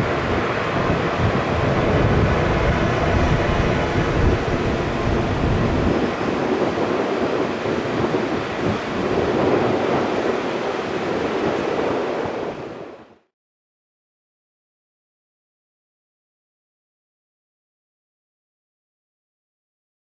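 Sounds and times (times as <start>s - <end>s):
jet engine rush: 0.0s - 13.3s.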